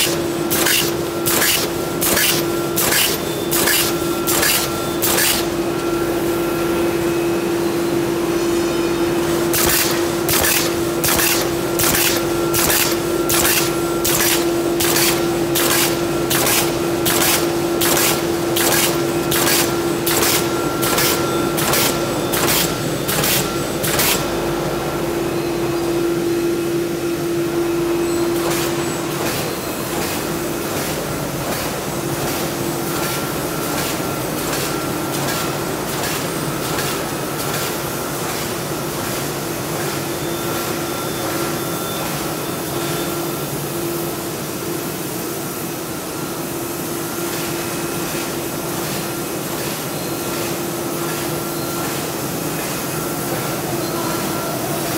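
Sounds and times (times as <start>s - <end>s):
rhythmic machine clacks: 0.0s - 5.4s, 9.5s - 24.2s
machine whine and hum: 0.0s - 54.9s.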